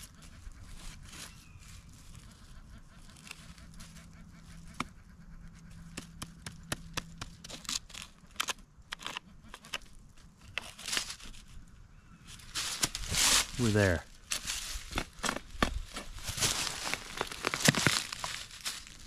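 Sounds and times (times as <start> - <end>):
digging tool chopping rocky soil: 14.8 - 18.3.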